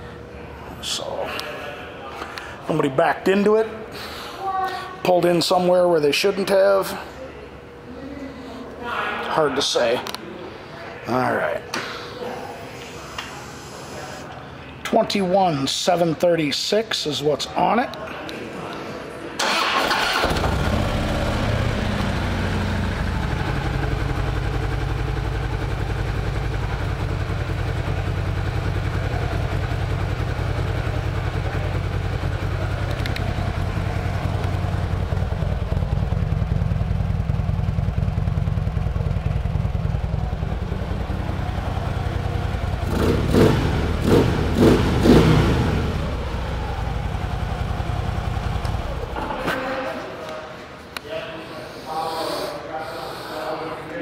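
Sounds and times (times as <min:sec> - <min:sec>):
motorcycle engine idling: 0:20.1 - 0:49.4.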